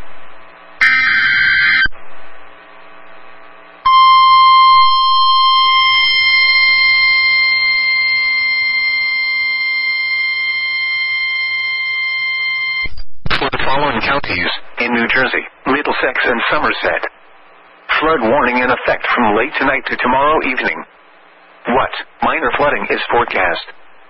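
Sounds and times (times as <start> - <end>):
screechy digital data chirp: 0.8 - 1.9, 3.9 - 12.9
steady alert tone: 3.9 - 8.9.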